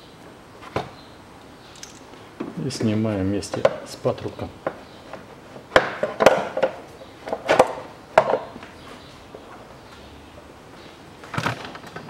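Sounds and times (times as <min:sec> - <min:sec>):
hard plastic knocking and clattering: 0:03.5 - 0:08.6.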